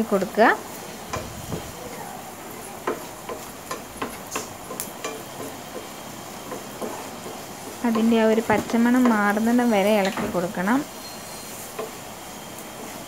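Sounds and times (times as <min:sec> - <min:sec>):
low frying hiss: 0:00.0 - 0:13.0
spatula tapping frying pan: 0:01.0 - 0:01.4, 0:02.5 - 0:10.2, 0:11.7 - 0:13.0.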